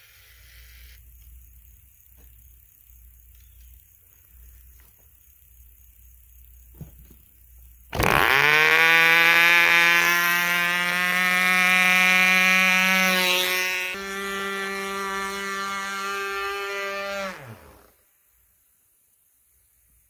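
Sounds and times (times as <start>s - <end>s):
model airplane engine buzzing: 7.9s - 18.0s.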